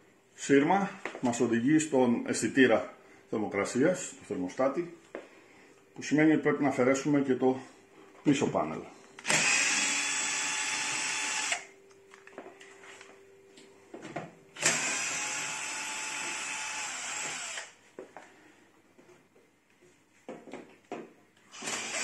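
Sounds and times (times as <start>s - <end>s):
power drill-driver running: 9.2s - 11.7s, 14.6s - 17.8s, 21.5s - 22.0s.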